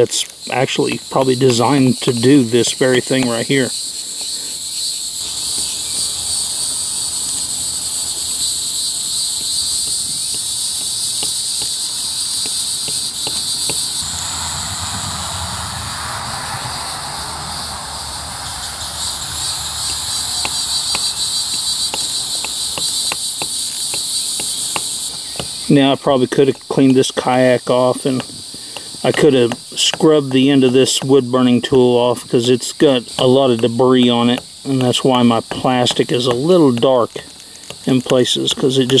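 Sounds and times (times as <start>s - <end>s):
insects trilling: 0.0s - 39.0s
low rushing noise: 14.0s - 20.0s.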